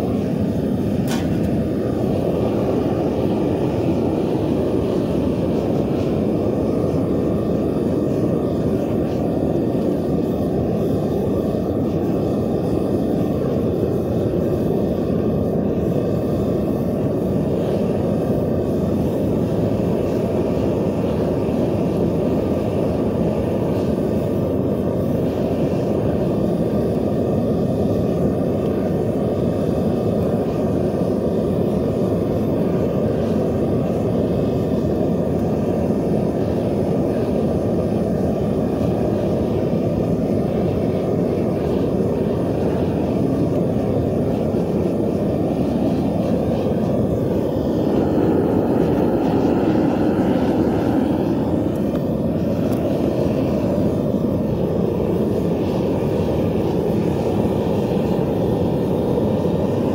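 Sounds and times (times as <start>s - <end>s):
gas burner roaring: 0.0s - 59.9s.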